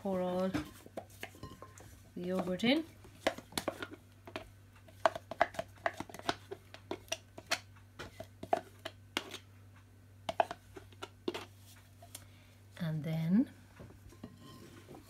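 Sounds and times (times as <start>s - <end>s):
spoon scraping a plastic pot: 3.2s - 9.4s, 10.3s - 11.6s.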